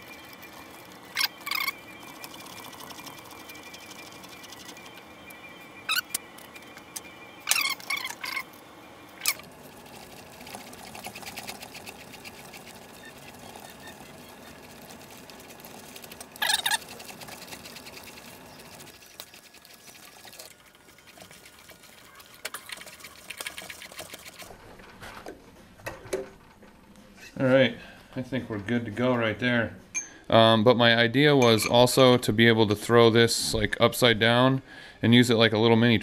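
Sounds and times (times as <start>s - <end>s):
faint fast ticking: 0.0s - 7.6s.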